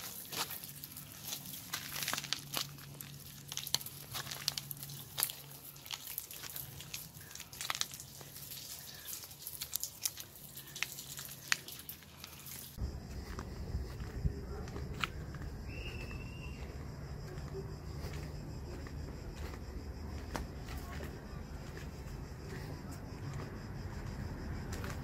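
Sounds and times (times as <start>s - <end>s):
tortoise scraping over gravel: 0.0s - 12.8s
faint low hum: 12.8s - 25.0s.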